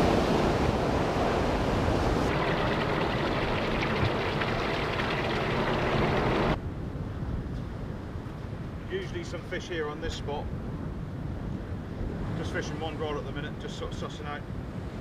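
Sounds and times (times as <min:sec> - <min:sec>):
waves splashing against groyne: 0:00.0 - 0:06.6
water pouring through gap: 0:02.2 - 0:06.6.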